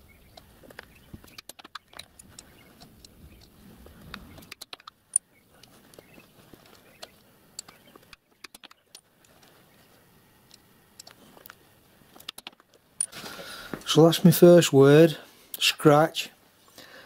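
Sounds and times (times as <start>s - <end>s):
sharp metallic click: 4.3s - 5.7s, 7.0s - 9.0s, 12.2s - 13.2s.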